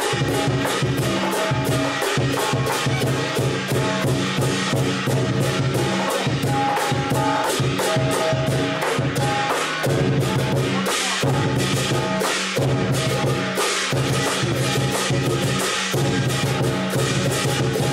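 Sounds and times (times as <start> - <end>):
cymbals clashing: 0.0 - 17.9
large drum beating: 0.0 - 17.9.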